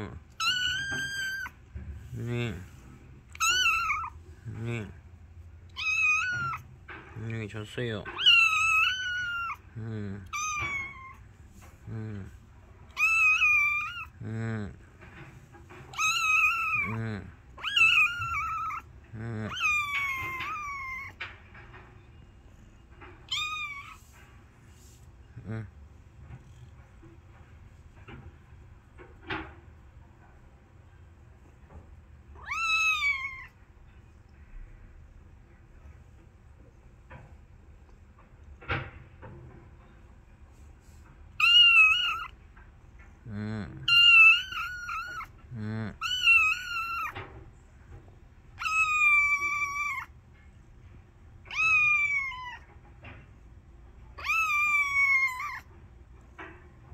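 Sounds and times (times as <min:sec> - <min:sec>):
kitten meowing: 0:00.3 - 0:01.6, 0:03.3 - 0:04.2, 0:05.7 - 0:06.7, 0:08.0 - 0:11.3, 0:12.9 - 0:14.2, 0:15.9 - 0:21.2, 0:23.3 - 0:24.2, 0:32.4 - 0:33.6, 0:41.4 - 0:42.4, 0:43.8 - 0:47.2, 0:48.6 - 0:50.1, 0:51.5 - 0:52.7, 0:54.2 - 0:55.6.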